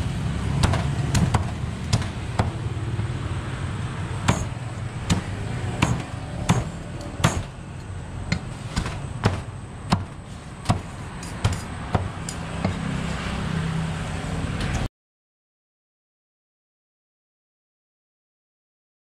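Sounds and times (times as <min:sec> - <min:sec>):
steady low hum: 0:00.0 - 0:12.9
cleaver chopping on chopping block: 0:00.6 - 0:02.6, 0:04.3 - 0:07.5, 0:08.3 - 0:12.9.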